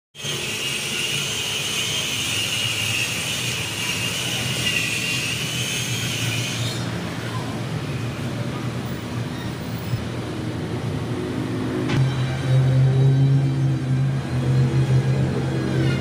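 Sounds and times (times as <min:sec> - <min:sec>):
blower motor hissing: 0:00.2 - 0:07.1.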